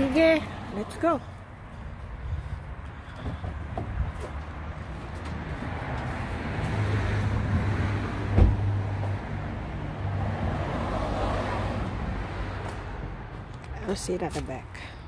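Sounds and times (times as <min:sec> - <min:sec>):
car door shutting: 0:08.3 - 0:08.7.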